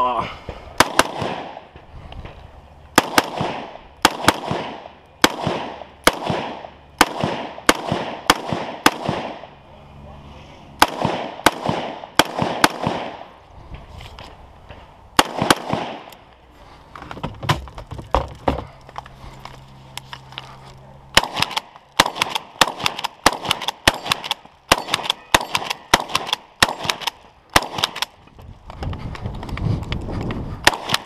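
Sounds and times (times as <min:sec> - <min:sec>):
rapid shotgun shots: 0:00.8 - 0:01.6, 0:03.0 - 0:09.5, 0:10.8 - 0:13.2, 0:15.2 - 0:16.1, 0:21.2 - 0:28.1, 0:30.6 - 0:31.0
rifle shots: 0:00.8 - 0:01.7, 0:03.0 - 0:09.5, 0:10.8 - 0:13.3, 0:15.2 - 0:16.1, 0:21.1 - 0:28.2, 0:30.6 - 0:31.0.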